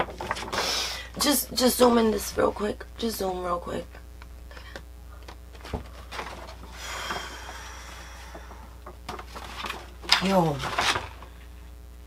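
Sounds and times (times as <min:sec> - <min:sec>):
paper or plastic rustling: 0:00.0 - 0:01.0, 0:05.5 - 0:07.6, 0:08.2 - 0:11.5
steady low hum: 0:00.0 - 0:12.0.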